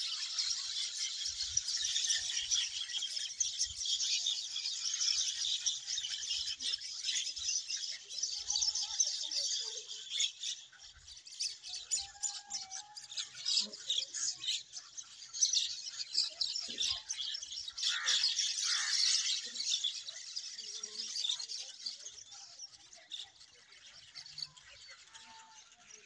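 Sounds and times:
swallows twittering: 0:00.0 - 0:26.0.

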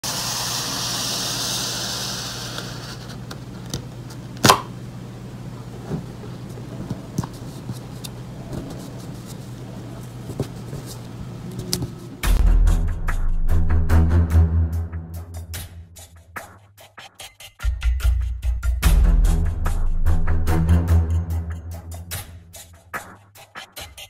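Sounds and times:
steady low hum: 0:00.3 - 0:13.3.

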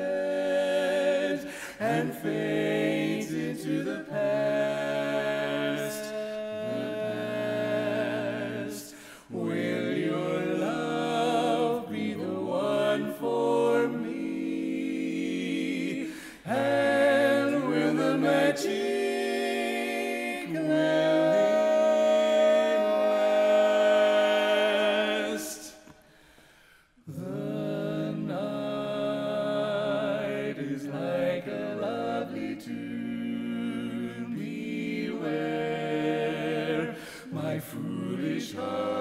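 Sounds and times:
quartet singing a cappella: 0:00.0 - 0:26.0, 0:27.0 - 0:39.0.

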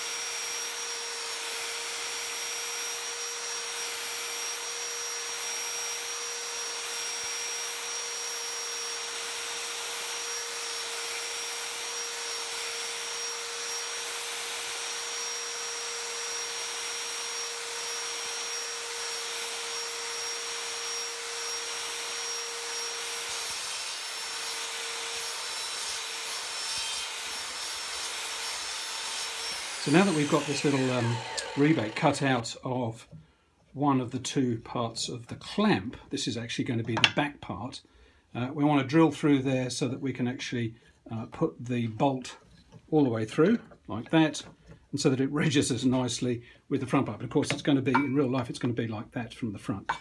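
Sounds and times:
mitre saw cutting wood: 0:00.0 - 0:32.6.

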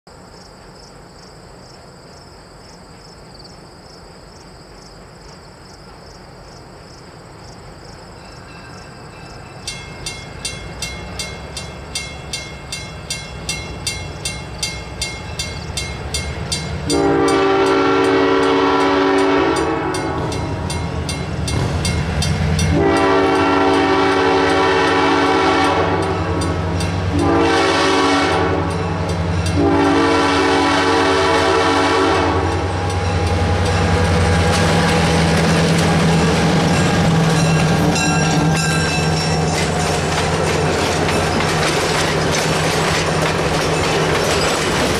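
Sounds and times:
locomotive rumble: 0:08.1 - 0:44.9
railroad crossing bell ringing: 0:08.2 - 0:24.7, 0:26.0 - 0:27.4, 0:28.6 - 0:29.9, 0:32.4 - 0:34.3, 0:36.6 - 0:40.2
locomotive horn: 0:16.8 - 0:20.6, 0:22.7 - 0:39.2.

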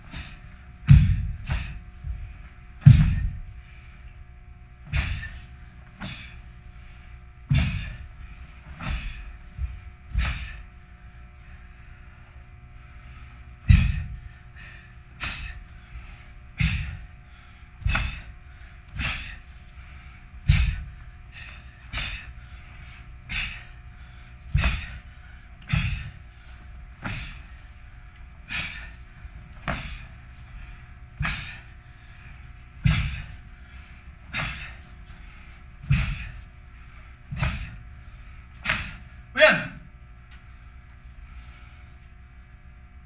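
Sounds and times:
foot thud: 0:00.1 - 0:03.5, 0:04.8 - 0:05.4, 0:07.4 - 0:10.7, 0:13.6 - 0:14.3, 0:16.6 - 0:17.1, 0:17.8 - 0:19.7, 0:20.4 - 0:23.7, 0:24.4 - 0:27.7, 0:29.5 - 0:30.1, 0:31.2 - 0:31.7, 0:32.8 - 0:33.5, 0:35.8 - 0:36.4, 0:37.3 - 0:37.8, 0:38.6 - 0:39.1.

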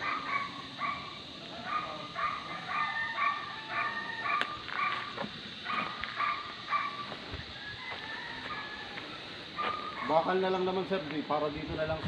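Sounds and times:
dog barking: 0:00.0 - 0:07.0, 0:09.6 - 0:10.3.

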